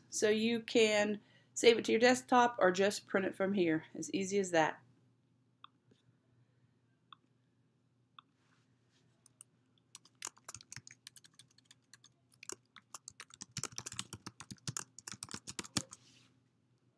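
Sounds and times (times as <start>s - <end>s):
keyboard typing clicks: 9.3s - 16.0s.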